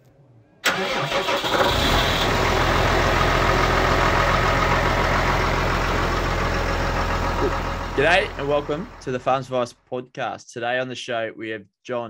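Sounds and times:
engine running: 0:00.7 - 0:09.5.

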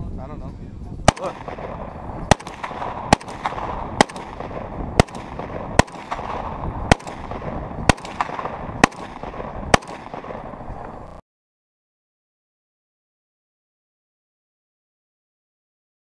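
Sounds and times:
rifle single shots: 0:01.1 - 0:11.2.

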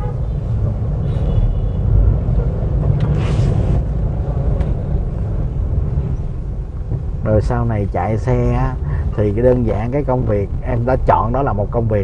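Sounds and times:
car engine and road rumble: 0:00.0 - 0:12.0
brief rush of noise: 0:03.0 - 0:03.9.

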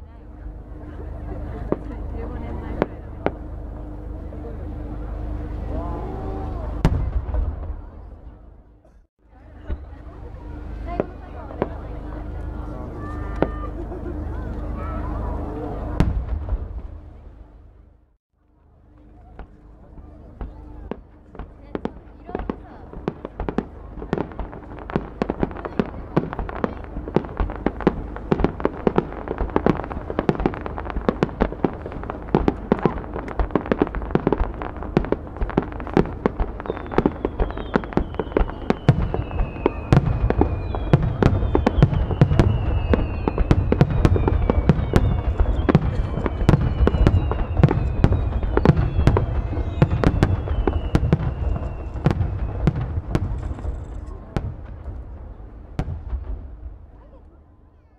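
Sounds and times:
deep firework booms: 0:00.8 - 0:09.0, 0:09.6 - 0:18.1, 0:19.4 - 0:57.1
fireworks crackling and bursting: 0:19.4 - 0:57.1
falling firework whistles: 0:36.0 - 0:54.2.

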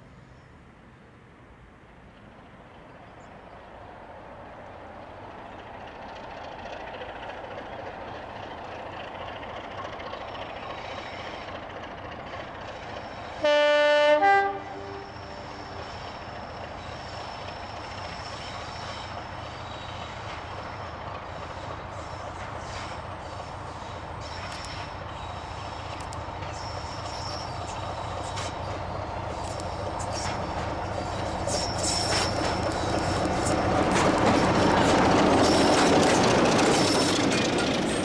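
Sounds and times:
diesel locomotive engine running: 0:03.3 - 0:38.0
two-note locomotive horn: 0:13.4 - 0:15.9.

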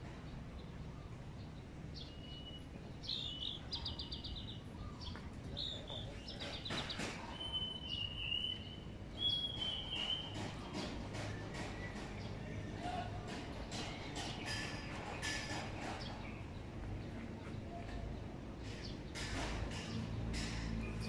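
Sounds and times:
small birds chirping: 0:00.1 - 0:13.0
bird whistled notes: 0:07.3 - 0:10.4.

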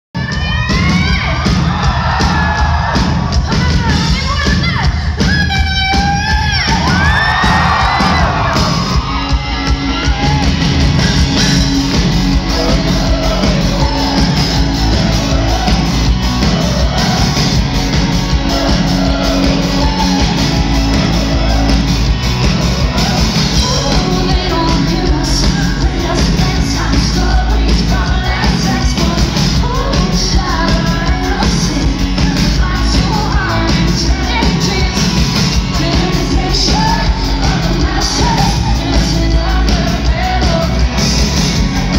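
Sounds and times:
live rock band playing: 0:00.2 - 0:41.9
woman singing lead vocals: 0:11.4 - 0:41.9.

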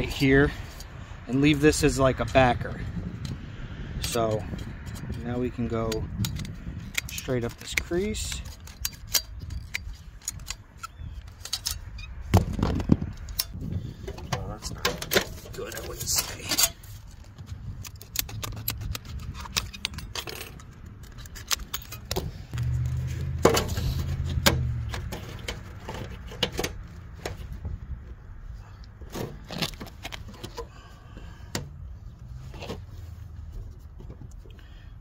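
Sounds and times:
low rumble: 0:22.3 - 0:25.8.

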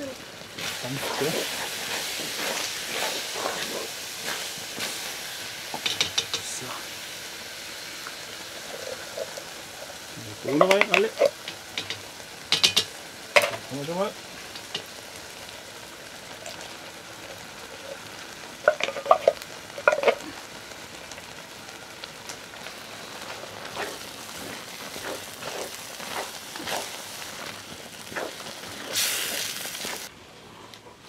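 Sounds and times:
chili sizzling in a pot: 0:00.0 - 0:31.0
short loud hiss: 0:28.9 - 0:30.1.

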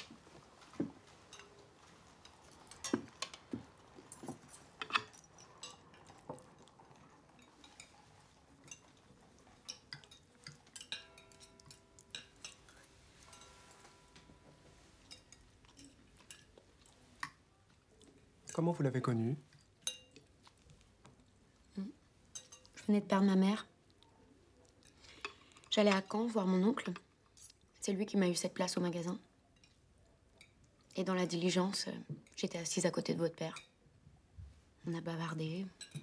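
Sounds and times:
cutlery clinking on plates: 0:00.6 - 0:17.4, 0:19.6 - 0:20.3, 0:22.3 - 0:22.8, 0:35.8 - 0:36.0.

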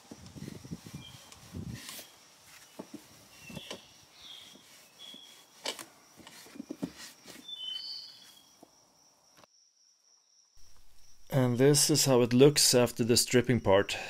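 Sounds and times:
bird chirps: 0:03.3 - 0:05.5, 0:07.4 - 0:08.6
wooden drawer knocking and rubbing: 0:06.2 - 0:07.5.

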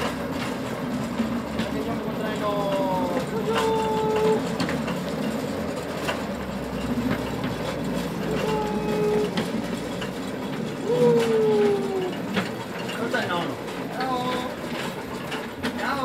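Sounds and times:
clicks over rail joints: 0:00.0 - 0:16.0
wheels rumbling on rail: 0:00.0 - 0:16.0
locomotive whistle: 0:08.2 - 0:09.5.

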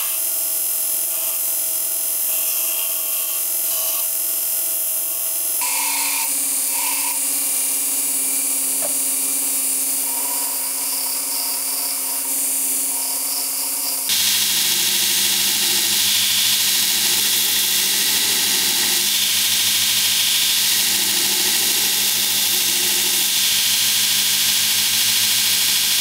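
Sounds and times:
belt grinder motor whine: 0:05.4 - 0:26.0
belt grinding steel hiss: 0:14.1 - 0:26.0.

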